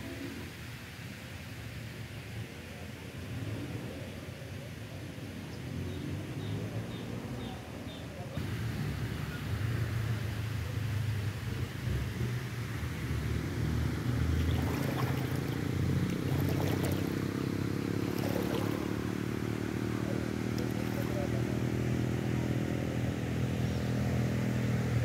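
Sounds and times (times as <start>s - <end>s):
small boat motor running: 14.1s - 21.8s.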